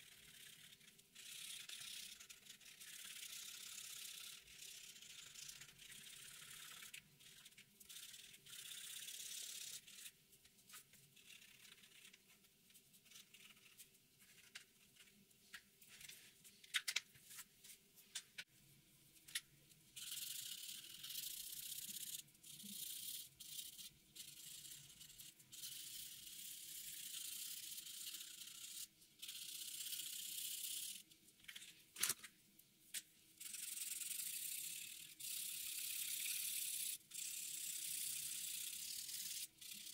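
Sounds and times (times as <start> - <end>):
marker scratching on paper: 0.0 - 15.2, 20.0 - 31.0.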